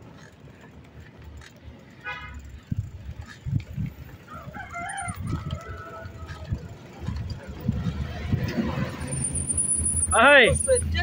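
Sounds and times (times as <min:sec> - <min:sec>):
rooster crowing: 0:04.3 - 0:06.6.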